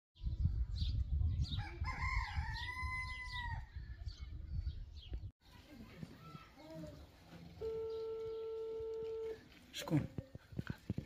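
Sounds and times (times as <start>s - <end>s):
rooster crowing: 1.7s - 3.7s
birds chirping: 2.5s - 9.5s.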